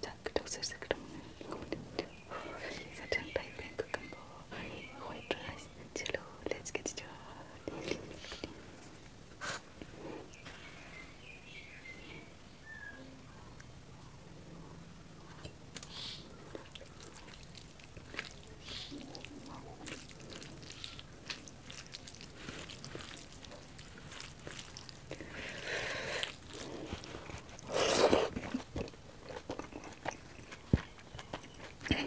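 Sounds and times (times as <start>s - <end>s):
fingers squishing wet rice: 15.7s - 32.0s.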